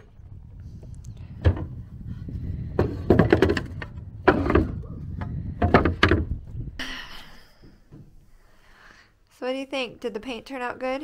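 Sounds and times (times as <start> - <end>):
clattering knocks and thuds: 1.3 - 6.7.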